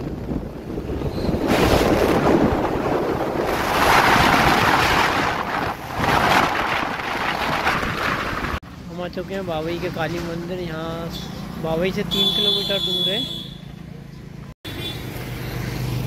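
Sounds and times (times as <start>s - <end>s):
wind buffeting microphone: 0.0s - 8.6s.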